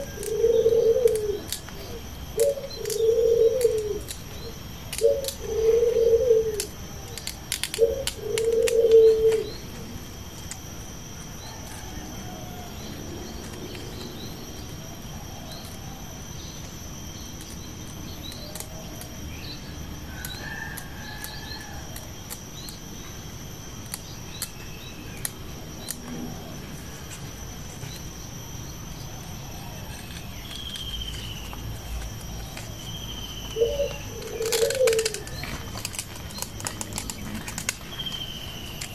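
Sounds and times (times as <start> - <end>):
dove cooing: 0.0 - 10.7, 31.4 - 38.9
high-pitched hum: 0.0 - 38.9
small birds chirping: 0.0 - 38.9.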